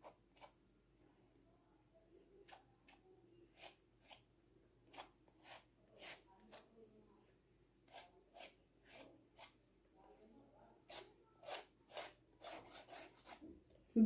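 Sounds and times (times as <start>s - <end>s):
palette knife scraping canvas: 0.0s - 0.6s, 2.4s - 4.2s, 4.8s - 9.6s, 10.2s - 13.5s.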